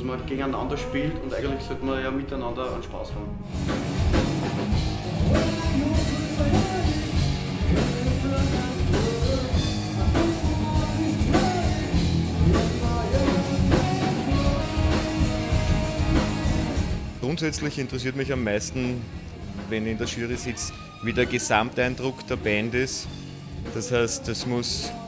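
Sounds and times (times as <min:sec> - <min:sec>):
rock band playing: 0:03.3 - 0:25.0
person singing: 0:05.2 - 0:16.8, 0:19.7 - 0:25.0.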